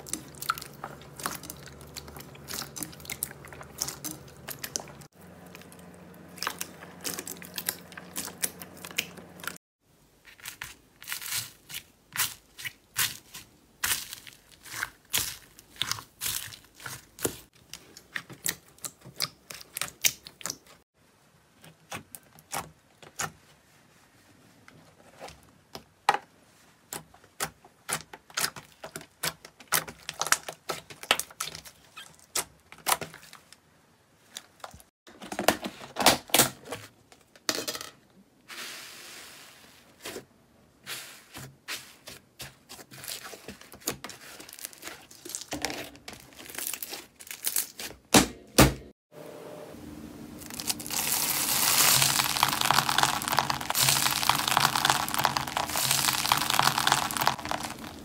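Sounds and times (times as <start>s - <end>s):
foam beads crunching: 50.4s - 58.0s
slime clicking and popping: 50.6s - 58.0s.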